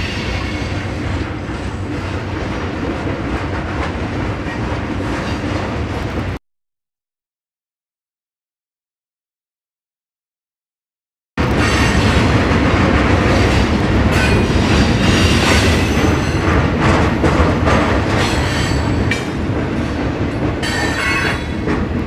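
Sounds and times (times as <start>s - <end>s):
freight train rumbling past: 0.0s - 6.4s, 11.4s - 22.0s
steel wheels clattering on rails: 11.4s - 22.0s.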